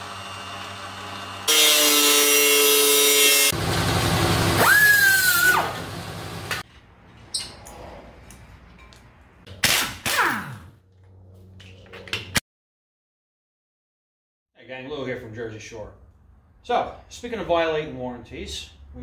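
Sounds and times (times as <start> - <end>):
angle grinder cutting steel: 0.0 - 6.6
harsh power tool noise: 0.0 - 6.6
high whistle: 4.6 - 5.7.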